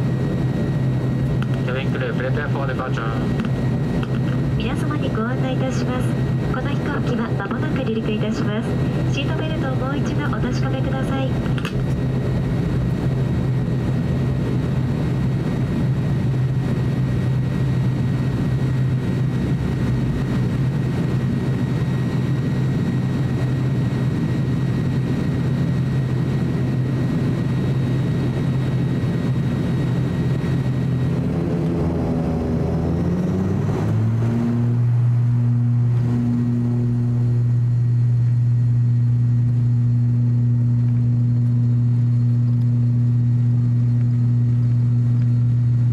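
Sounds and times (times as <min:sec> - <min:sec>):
turboprop engines droning: 0:00.0 - 0:45.9.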